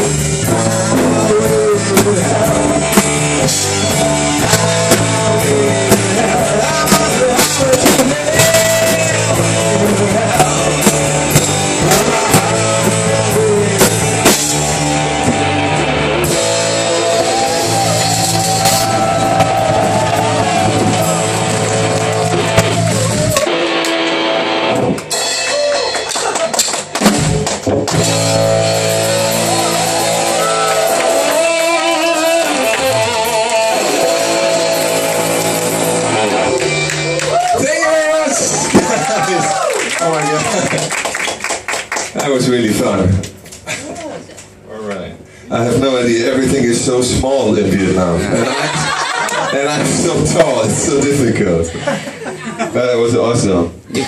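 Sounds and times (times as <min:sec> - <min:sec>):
man singing: 0:00.0 - 0:14.7, 0:30.3 - 0:36.3
drum kit: 0:00.0 - 0:39.6, 0:48.2 - 0:51.4
electric guitar: 0:00.0 - 0:41.5.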